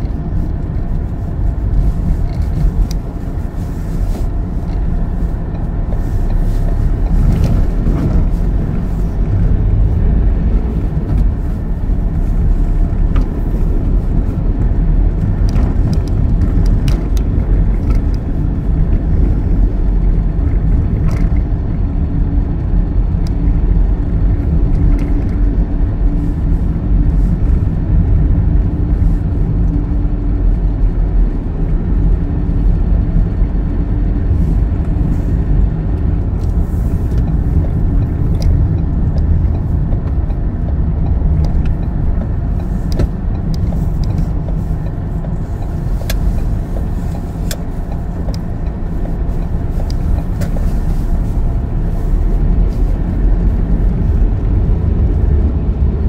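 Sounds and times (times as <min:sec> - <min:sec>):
vehicle engine and tyre rumble: 0:00.0 - 0:56.0
sharp clicks and ticks: 0:35.9 - 0:50.6.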